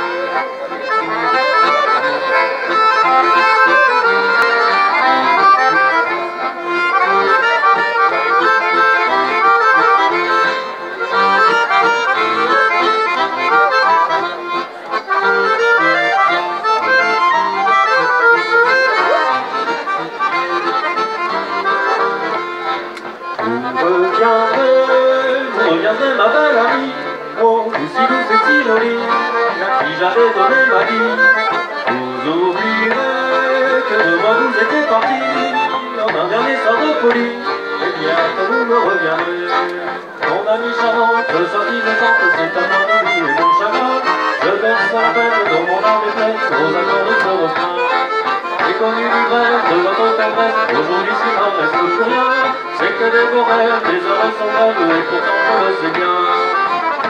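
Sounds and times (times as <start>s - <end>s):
accordion playing dance tune: 0.0s - 57.0s.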